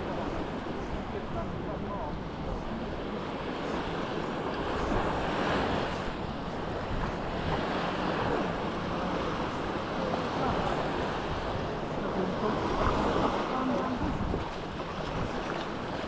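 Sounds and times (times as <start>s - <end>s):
sea waves breaking on beach: 0.0s - 16.0s
wind rumbling on microphone: 0.0s - 16.0s.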